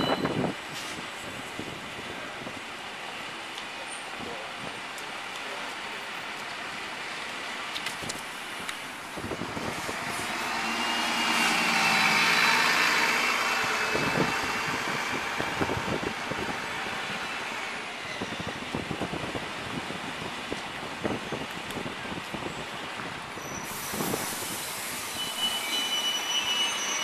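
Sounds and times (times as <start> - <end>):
background traffic: 0.0 - 27.0
diesel bus driving past: 7.6 - 18.7
high transmission whine: 8.0 - 19.2.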